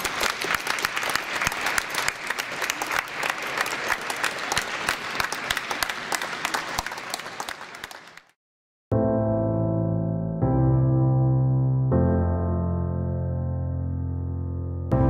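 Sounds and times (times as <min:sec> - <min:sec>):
audience applauding: 0:00.0 - 0:08.4
electric piano music: 0:08.9 - 0:15.0.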